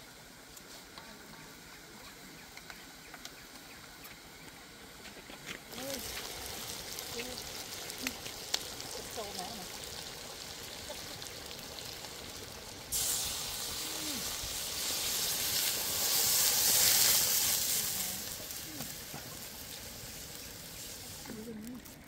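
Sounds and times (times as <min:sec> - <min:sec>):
loud hiss and sizzle: 0:00.0 - 0:22.0
fish sizzling in a wok: 0:05.6 - 0:22.0
water poured into hot wok: 0:05.7 - 0:22.0.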